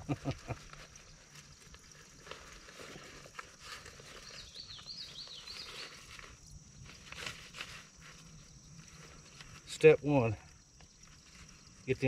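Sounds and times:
bird chirping: 4.0s - 6.4s.

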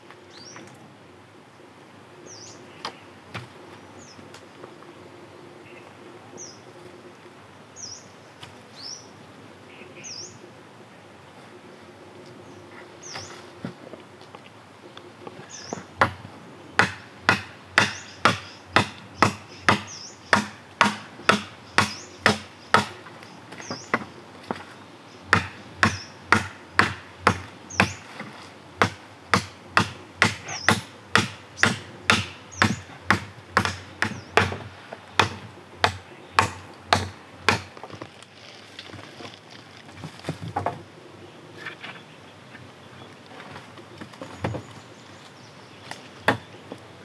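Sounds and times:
machete chopping wooden poles: 16.0s - 16.2s, 16.8s - 24.7s, 25.3s - 38.1s.

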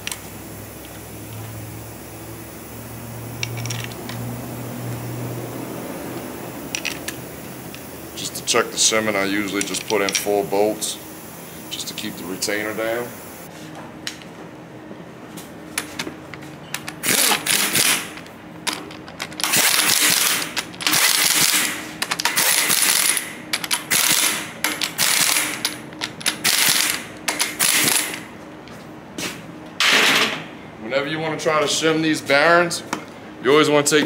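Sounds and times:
impact wrench rattling: 3.3s - 4.4s, 6.5s - 10.8s, 15.8s - 28.3s.

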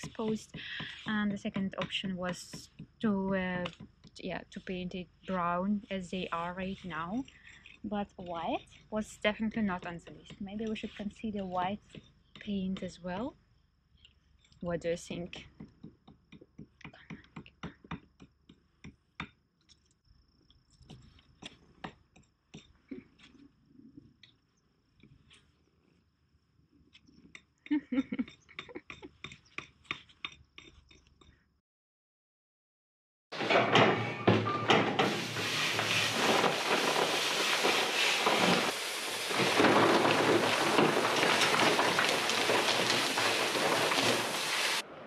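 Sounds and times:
masonry work crackling and rustling: 0.0s - 31.5s, 33.3s - 44.9s
brick debris crumbling: 33.4s - 44.8s.

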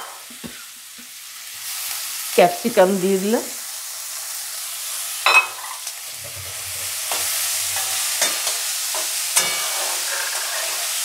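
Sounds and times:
vegetables sizzling in hot oil: 0.0s - 11.0s
metal spatula stirring: 6.4s - 11.0s.

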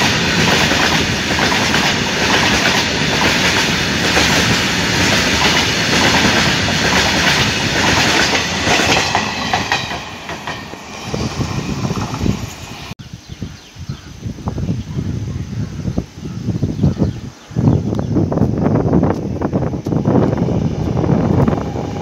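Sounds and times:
train wheels clattering on rails: 0.0s - 13.0s.

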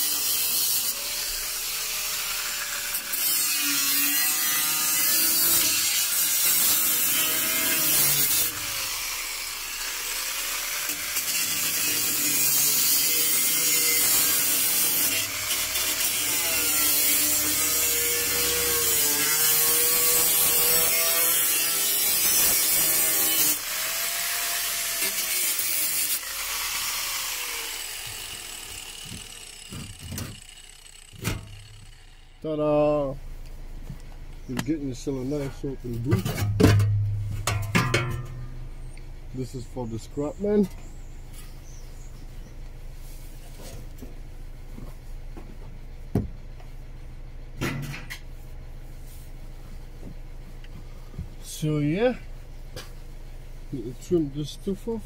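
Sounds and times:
angle grinder cutting sheet steel: 0.0s - 32.5s.

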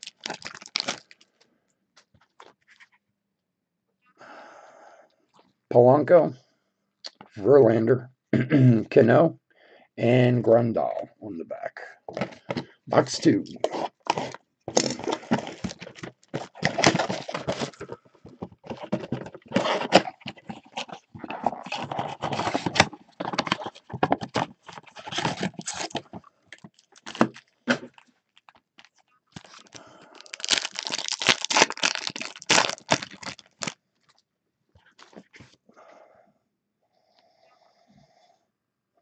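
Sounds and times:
foil packs crinkling and tearing: 0.0s - 1.3s, 13.7s - 33.8s.

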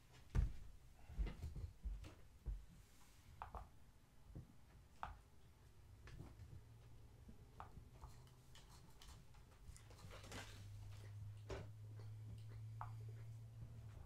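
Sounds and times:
soft rustle: 0.0s - 3.4s.

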